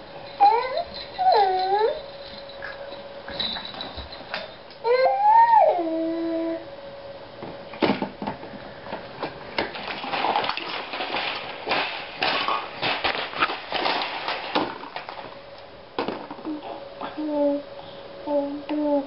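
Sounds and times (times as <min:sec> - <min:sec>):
plastic toys clattering: 0:09.6 - 0:15.4, 0:16.0 - 0:16.6.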